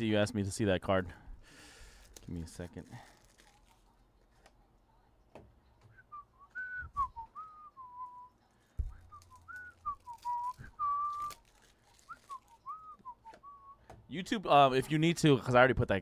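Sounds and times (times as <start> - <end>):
person whistling a tune: 5.9 - 8.3, 8.9 - 11.4, 12.0 - 13.9.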